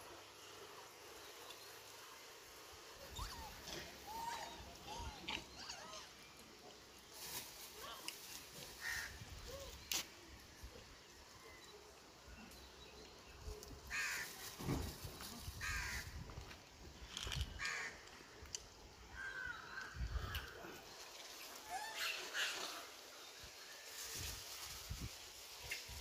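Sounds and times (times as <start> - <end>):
rustling: 6.9 - 10.2.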